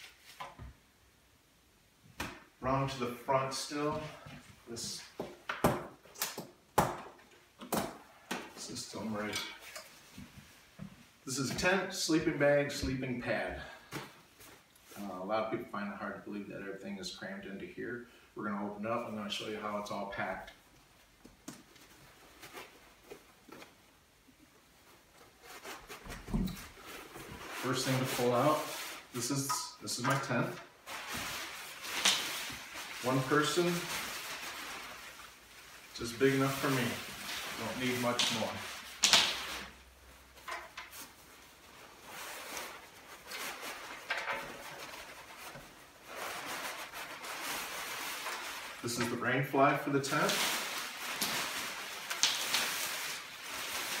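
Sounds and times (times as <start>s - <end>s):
fabric bag rustling: 30.8s - 48.9s, 50.1s - 54.0s.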